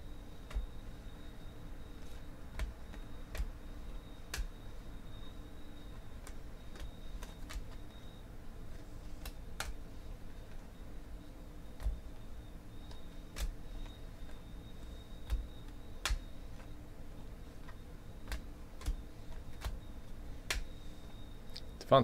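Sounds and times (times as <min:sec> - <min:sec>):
faint steady hum: 0:00.0 - 0:22.0
trading cards clicking: 0:04.2 - 0:04.6, 0:06.2 - 0:07.8, 0:08.7 - 0:09.8.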